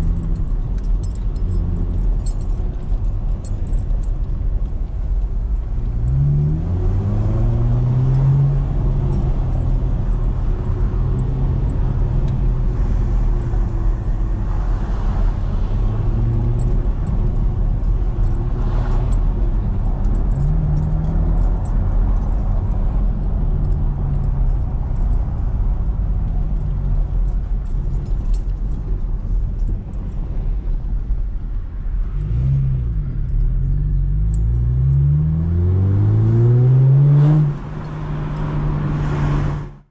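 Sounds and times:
road and tyre rumble: 0.0 - 39.9
car engine revving: 32.1 - 39.9.

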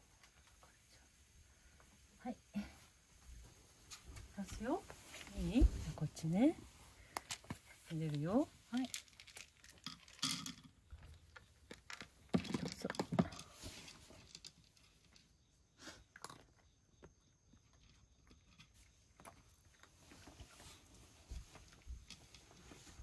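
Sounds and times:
kibble rattling into dish: 7.3 - 15.2
cat crunching kibble: 16.1 - 16.6.

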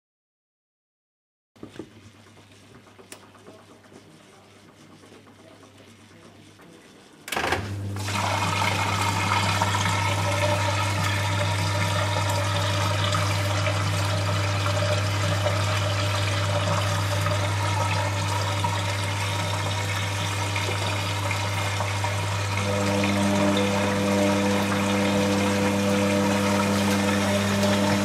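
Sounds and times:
drain pump humming: 7.3 - 28.0.

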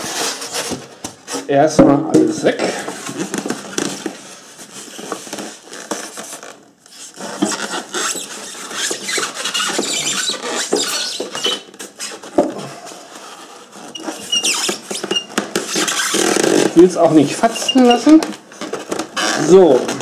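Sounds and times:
foam block squeaking and scraping: 0.0 - 1.6, 2.9 - 20.0
plastic film crinkling: 3.0 - 12.3.

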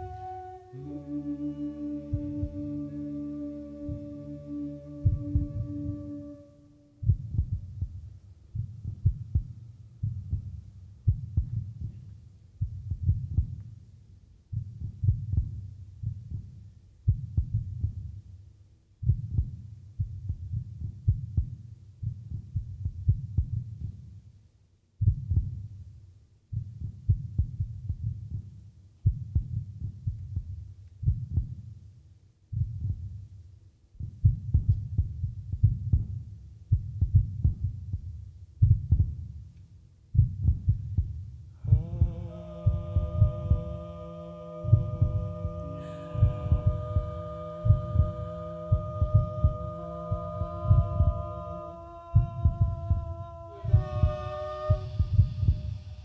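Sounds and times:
low deep clicking pulses: 0.0 - 18.3, 34.0 - 56.0.

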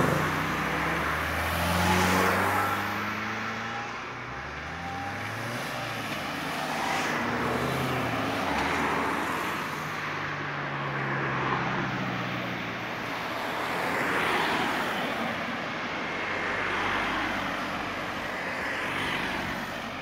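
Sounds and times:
cars driving past: 0.0 - 20.0.

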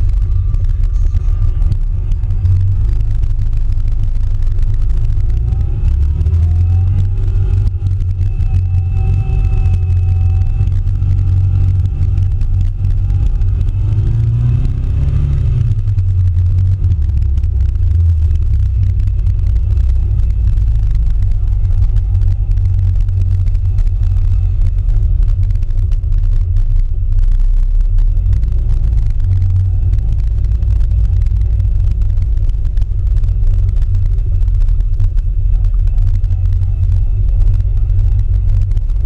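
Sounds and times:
car engine rumbling: 0.0 - 39.0.

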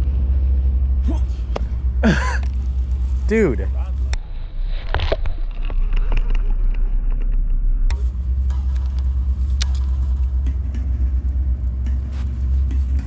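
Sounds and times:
loud low rumble: 0.0 - 13.0
sharp click: 7.9 - 13.0.

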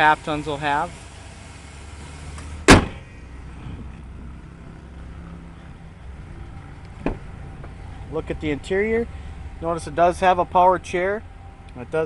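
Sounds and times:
car hood slamming shut: 2.6 - 3.1, 7.0 - 7.3
low steady hum: 2.7 - 12.0.

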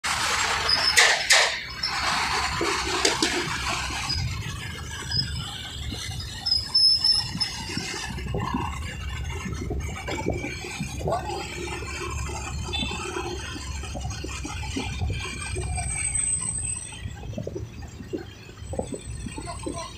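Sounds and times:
engines and tyres rumbling: 0.0 - 19.9
wind rushing over microphone: 1.8 - 19.9
faint high squeals: 11.3 - 17.5.

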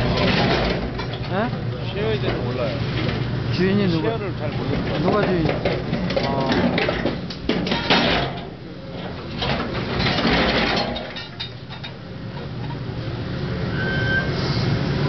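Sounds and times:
steel creaking and crunching: 0.0 - 13.0.

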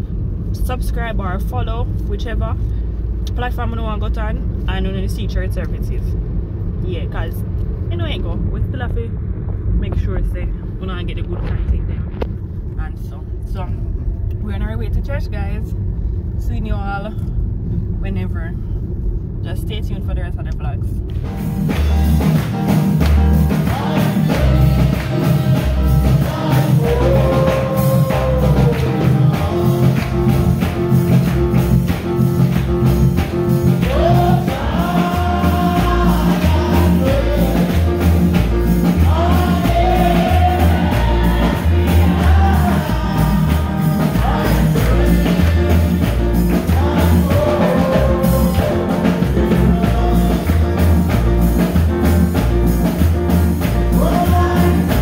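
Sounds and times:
repeating bass line: 21.1 - 55.0
steady beat: 21.2 - 55.0
gospel singing: 21.7 - 55.0.

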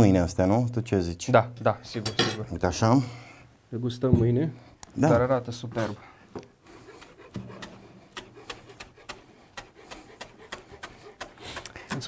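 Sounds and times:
utensils clicking and tapping: 6.4 - 12.0.

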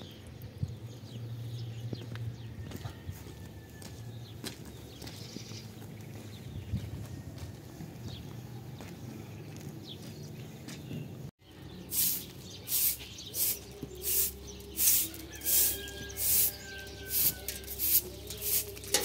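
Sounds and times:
broom sweeping cement: 11.9 - 19.0.

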